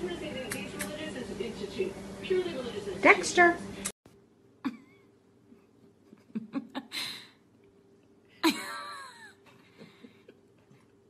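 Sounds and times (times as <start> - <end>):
person laughing breathily: 5.6 - 7.4, 8.4 - 10.4.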